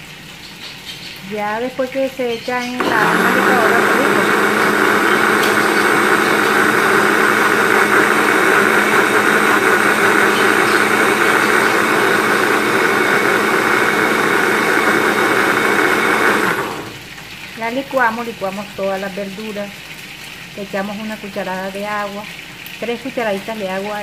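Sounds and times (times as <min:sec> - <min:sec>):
blender motor humming: 0:02.7 - 0:17.2.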